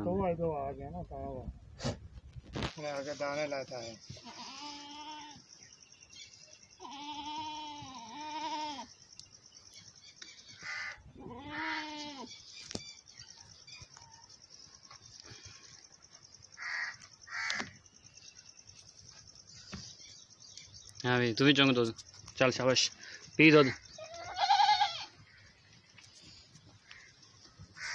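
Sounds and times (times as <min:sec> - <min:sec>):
goat bleating: 0:04.2 - 0:05.4, 0:06.8 - 0:08.9, 0:10.7 - 0:12.3, 0:24.0 - 0:25.2.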